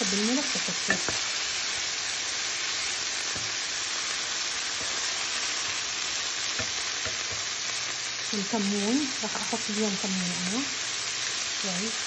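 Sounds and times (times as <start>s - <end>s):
green beans sizzling in oil: 0.0s - 12.0s
utensil knocking on pan: 0.9s - 1.2s, 6.6s - 7.5s.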